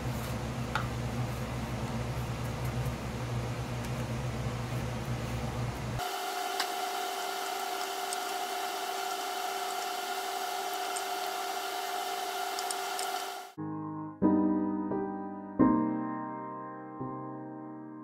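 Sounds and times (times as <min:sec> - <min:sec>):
motor hum with whine: 0:00.0 - 0:13.6.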